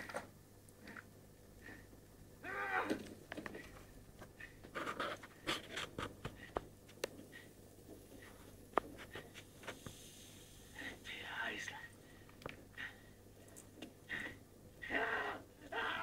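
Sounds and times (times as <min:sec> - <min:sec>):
wavering voice-like cry: 0:02.4 - 0:03.0, 0:14.8 - 0:16.0.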